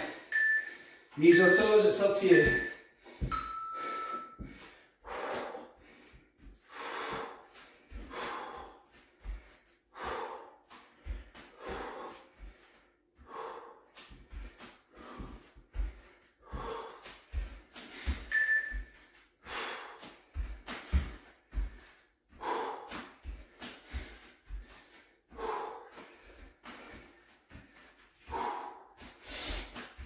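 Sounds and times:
man breathing hard: 0.0 - 30.0
short electronic timer beep: 0.3 - 0.8, 18.3 - 18.8.

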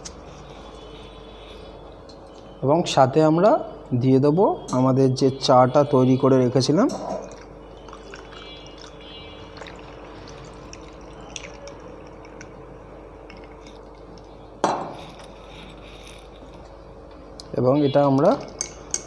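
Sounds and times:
tea pouring over ice: 7.2 - 12.6.

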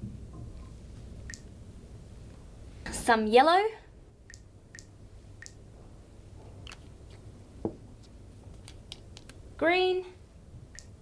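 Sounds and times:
low steady hum: 0.0 - 11.0
woman's voice: 2.9 - 3.9, 9.6 - 10.2.

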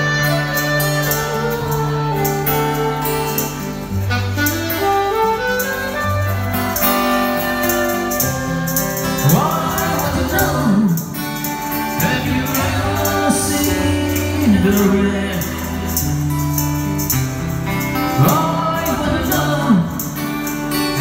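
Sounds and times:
acoustic guitar: 0.0 - 21.0
saxophone melody: 0.0 - 21.0
man singing: 9.1 - 16.1, 18.1 - 20.4.

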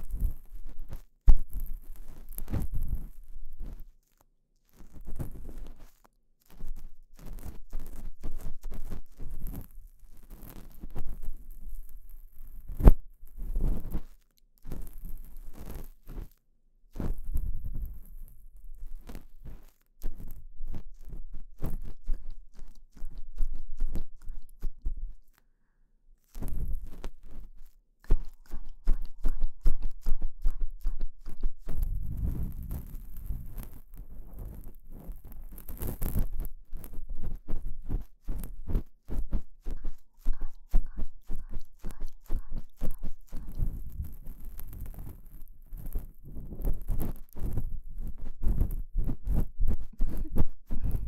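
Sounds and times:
ear pick scraping: 31.7 - 51.0.

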